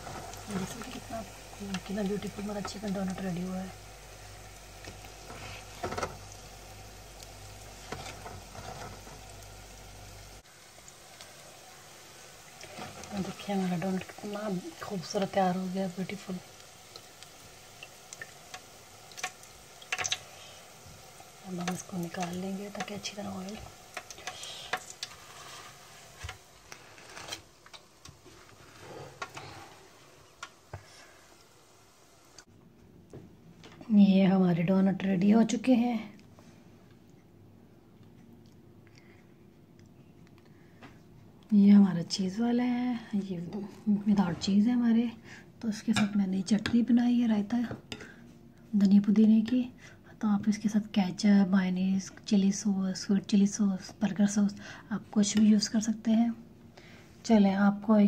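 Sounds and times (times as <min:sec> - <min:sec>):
hot oil sizzling and bubbling: 0:00.0 - 0:32.5.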